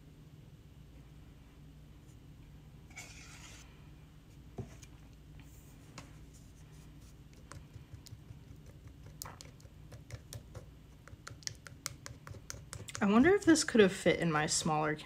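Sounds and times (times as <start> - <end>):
spatula scraping through mesh strainer: 2.9 - 3.7.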